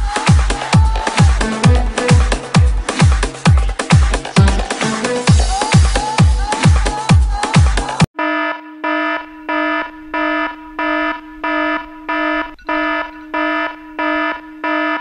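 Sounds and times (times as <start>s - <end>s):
phone alarm beeping: 8.2s - 15.0s.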